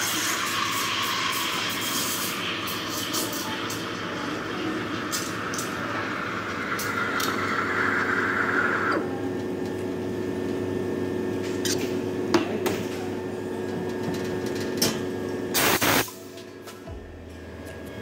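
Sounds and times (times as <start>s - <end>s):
espresso machine hiss: 0.0s - 9.1s
espresso machine pump humming: 0.0s - 10.6s.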